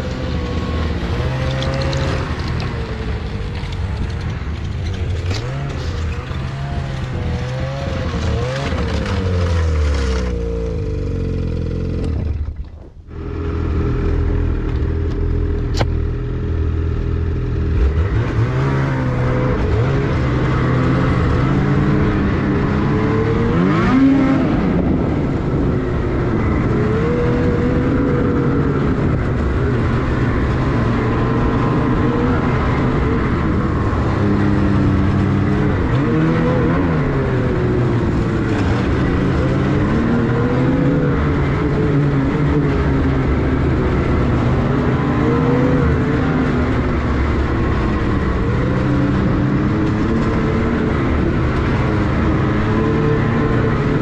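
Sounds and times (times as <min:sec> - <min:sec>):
snowmobile engine revving: 0:05.1 - 0:12.4, 0:17.5 - 0:54.0.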